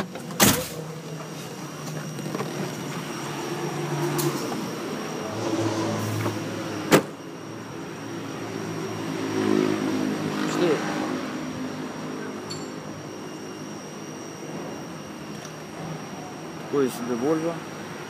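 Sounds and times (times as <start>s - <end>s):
car door shutting: 6.2s - 7.2s.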